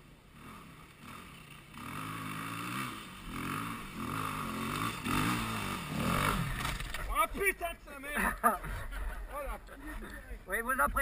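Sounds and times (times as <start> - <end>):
dirt bike engine revving: 0.3 - 7.2.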